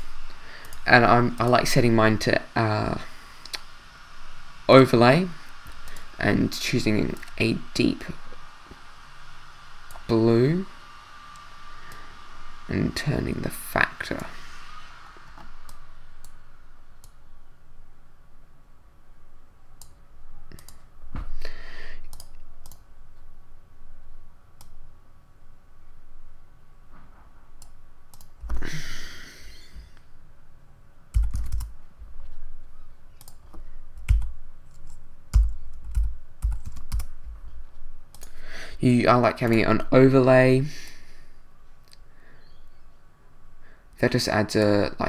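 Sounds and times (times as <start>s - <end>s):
keyboard and mouse clicking: 19.8s - 20.8s, 22.1s - 22.8s, 27.6s - 28.6s, 31.1s - 31.8s, 33.2s - 37.1s, 38.1s - 38.4s.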